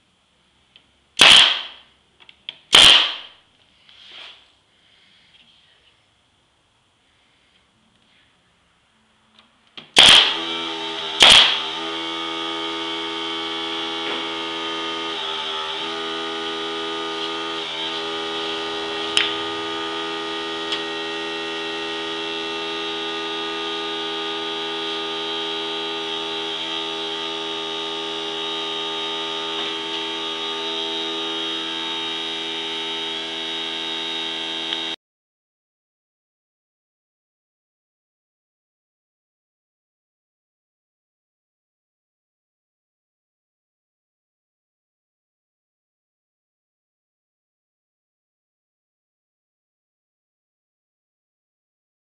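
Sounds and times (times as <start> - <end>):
pneumatic nailer shots: 1.2 - 1.9, 2.7 - 3.4, 9.8 - 35.0
droning hum with high whine: 16.5 - 35.0.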